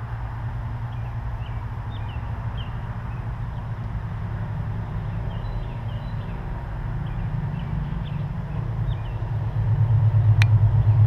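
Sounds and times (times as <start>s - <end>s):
steady low rumble: 0.0s - 11.0s
small birds chirping: 0.9s - 3.8s, 4.9s - 9.6s.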